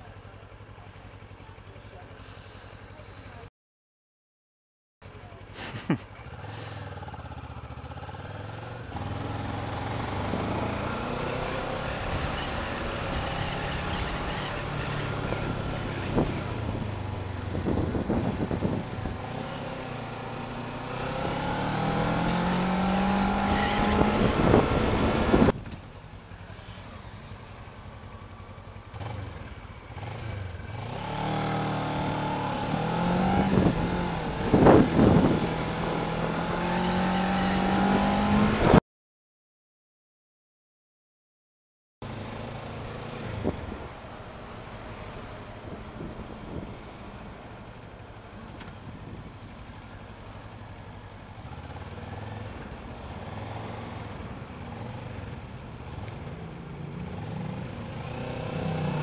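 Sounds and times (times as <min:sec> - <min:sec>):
motorcycle engine accelerating: 0:05.7 - 0:38.8, 0:42.0 - 0:59.0
wind noise: 0:15.0 - 0:19.4, 0:21.2 - 0:25.8, 0:32.8 - 0:38.8, 0:45.6 - 0:47.0.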